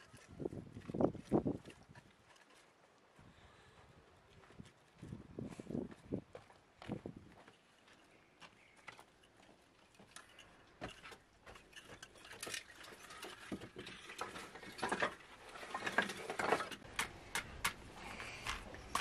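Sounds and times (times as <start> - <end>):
firewood knocking and clattering: 10.1 - 17.8.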